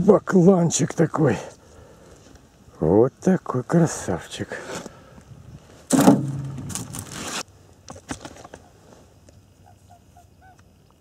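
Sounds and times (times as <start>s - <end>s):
rustling scraping noise: 5.6s - 9.1s.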